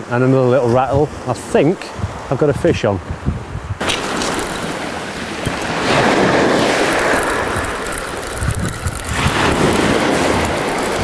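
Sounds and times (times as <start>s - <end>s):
wind buffeting microphone: 0.5s - 11.0s
sea waves breaking: 3.8s - 11.0s.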